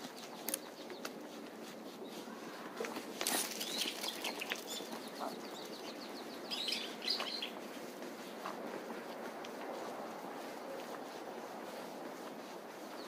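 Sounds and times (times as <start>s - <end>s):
wild birds chirping and calling: 0.1s - 8.0s.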